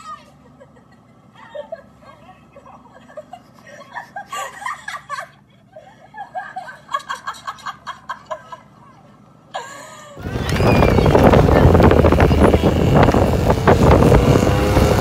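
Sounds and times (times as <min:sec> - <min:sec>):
people laughing: 0:00.1 - 0:12.1.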